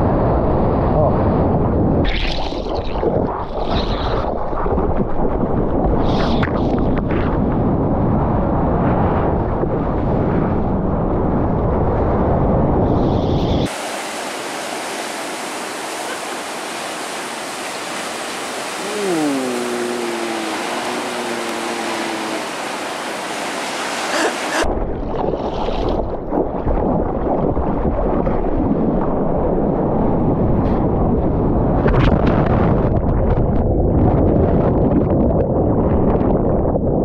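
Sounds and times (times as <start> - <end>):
ocean surf breaking: 13.6 - 24.7
water splashing against microphone: 13.7 - 27.9.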